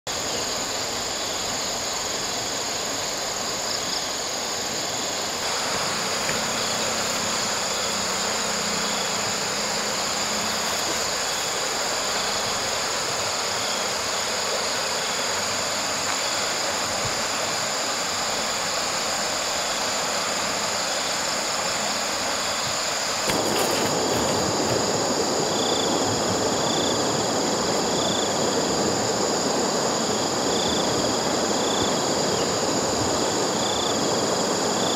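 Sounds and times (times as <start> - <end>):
continuous rushing noise: 0.1 - 34.9
insect trilling: 0.2 - 29.3.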